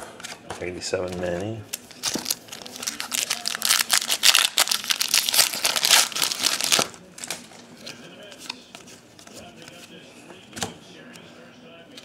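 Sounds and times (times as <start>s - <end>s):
foil wrapper crinkling: 1.7s - 7.0s
crackly rustle of foil: 1.7s - 7.4s.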